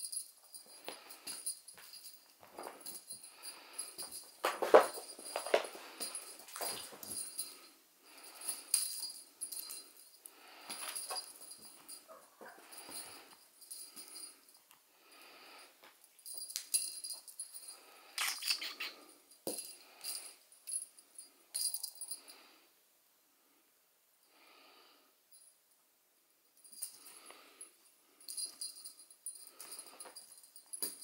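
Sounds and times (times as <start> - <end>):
small bell jingling: 0.0 - 22.5, 26.4 - 31.0
kittens scuffling on a sofa: 0.8 - 7.5.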